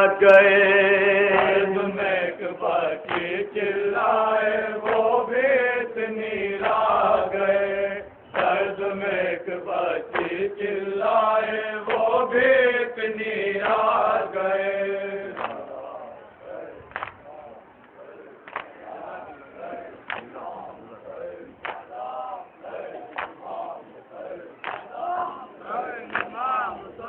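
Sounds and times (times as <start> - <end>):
man chanting through loudspeaker: 0.0 - 3.0.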